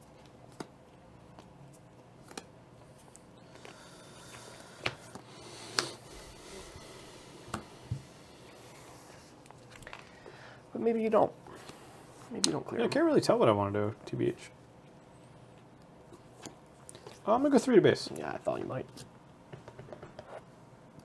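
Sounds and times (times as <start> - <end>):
faint room hiss: 0.0 - 21.0.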